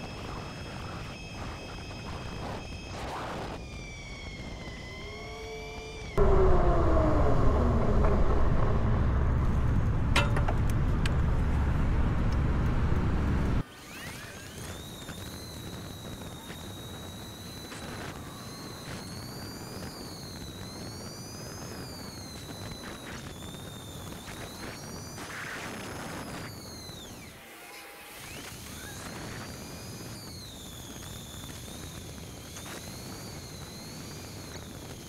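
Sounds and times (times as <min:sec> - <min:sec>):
electric bike motor whining: 0:00.0 - 0:09.8, 0:13.6 - 0:35.0
loud low rumble: 0:06.2 - 0:13.6.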